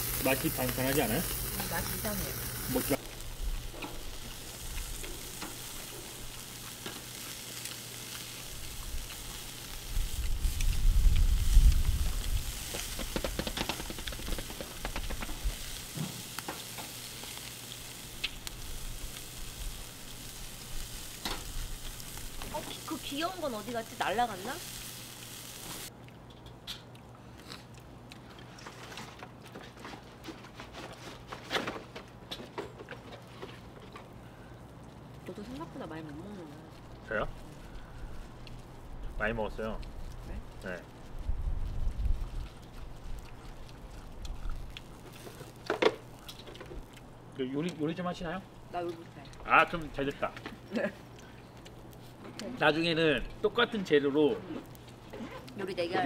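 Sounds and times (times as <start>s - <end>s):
chicken sizzling on a grill: 0.0s - 25.9s, 35.3s - 56.0s
chewing: 3.5s - 23.0s, 26.0s - 31.0s, 32.8s - 47.8s, 50.5s - 52.6s, 54.2s - 56.0s.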